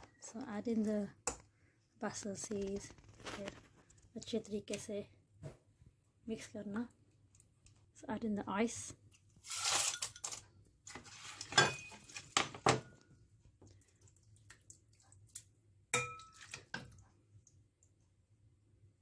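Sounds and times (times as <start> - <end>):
ladle clinking against a pot: 16.0 - 16.9.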